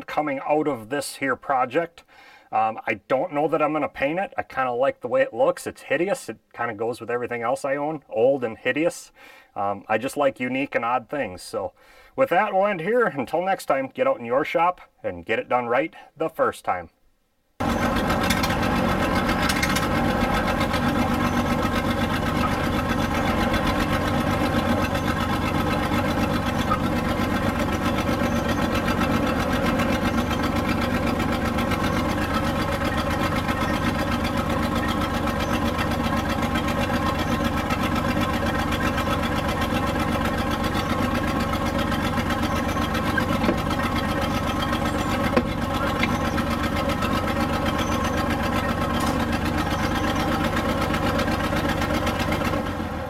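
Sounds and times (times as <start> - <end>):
crane engine running: 17.6 - 53.0.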